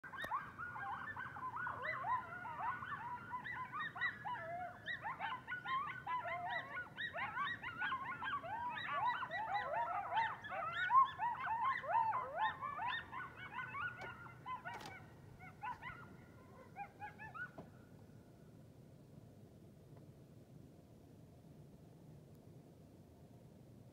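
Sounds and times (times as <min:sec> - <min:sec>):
coyotes howling: 0:00.0 - 0:17.7.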